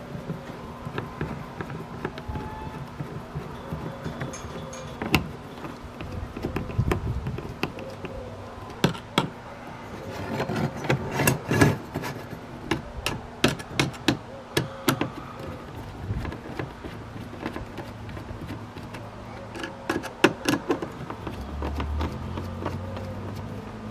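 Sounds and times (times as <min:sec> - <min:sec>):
screwdriver clicking on plastic: 0:00.1 - 0:08.1, 0:12.7 - 0:23.4.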